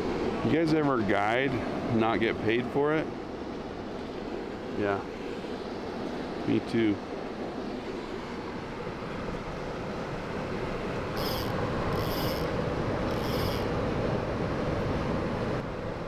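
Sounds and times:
river water rushing: 3.1 - 16.0
short high-pitched buzzes: 11.2 - 13.7.

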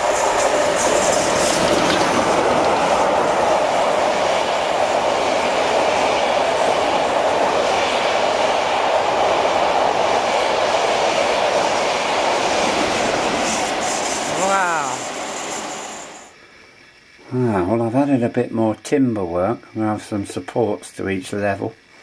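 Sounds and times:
steam locomotive passing: 0.0 - 16.4.

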